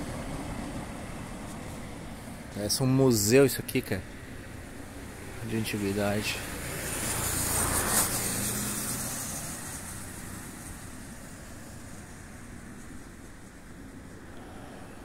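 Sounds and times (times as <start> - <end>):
car passing: 4.2 - 15.0.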